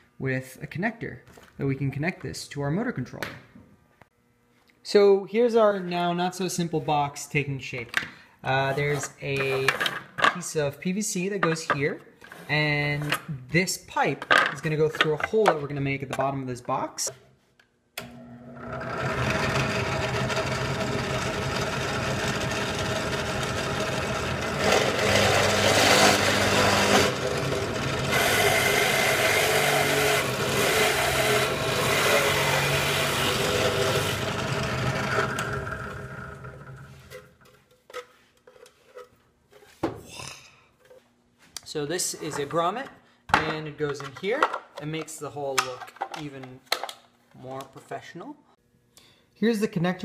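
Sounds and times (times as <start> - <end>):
drill press motor hum: 18.0 - 37.0
hole saw cutting plastic: 18.7 - 36.9.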